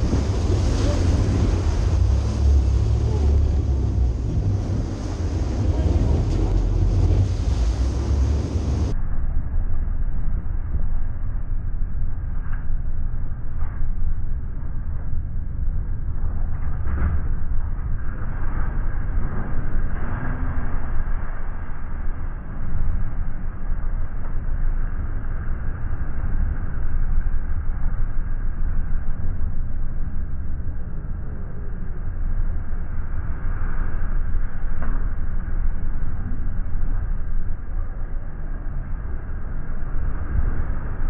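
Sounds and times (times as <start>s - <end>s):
water churning in wake: 0.0s - 8.9s
boat engines rumbling: 0.0s - 9.0s
boat engine rumble: 0.0s - 41.0s.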